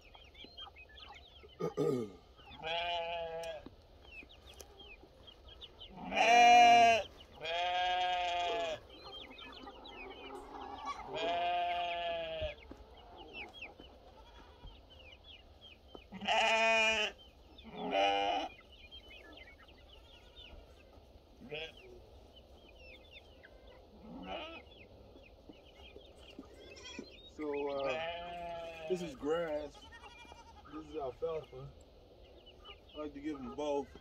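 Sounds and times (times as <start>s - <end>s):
goats bleating: 1.6s - 3.7s, 5.9s - 8.9s, 10.8s - 12.6s, 14.1s - 14.8s, 16.1s - 18.6s, 21.4s - 21.9s, 23.5s - 24.7s, 26.4s - 31.4s
chickens clucking softly: 3.4s - 7.4s, 8.4s - 16.2s, 17.2s - 34.0s.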